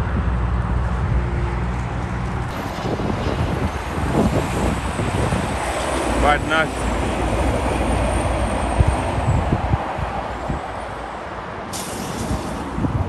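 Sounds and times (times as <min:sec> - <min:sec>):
diesel trucks passing: 0:00.0 - 0:13.0
wind on microphone: 0:00.0 - 0:13.0
brief hiss: 0:11.7 - 0:12.7.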